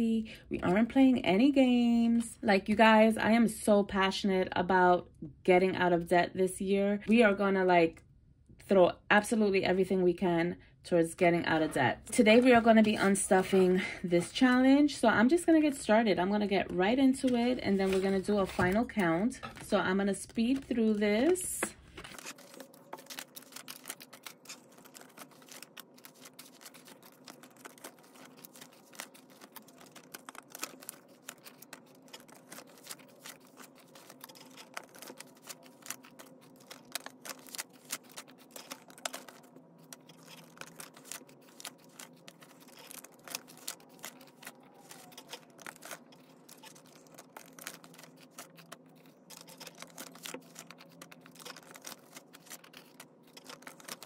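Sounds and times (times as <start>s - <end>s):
banknotes rustling: 11.6s - 14.6s, 16.4s - 54.0s
plastic binder pockets crinkling: 17.2s - 54.0s.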